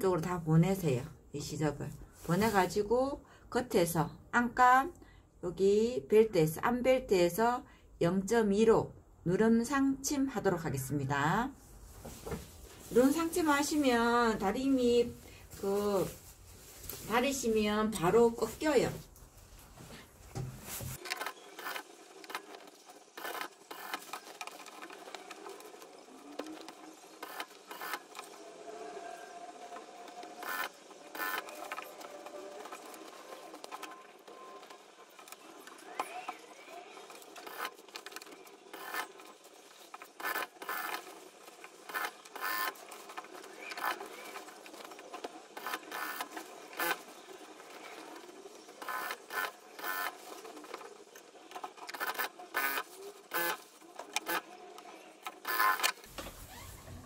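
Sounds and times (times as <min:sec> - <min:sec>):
fabric rustling: 0:02.0 - 0:02.9, 0:11.5 - 0:21.0, 0:56.1 - 0:57.0
sewing machine stitching: 0:21.0 - 0:36.4, 0:37.0 - 0:57.0.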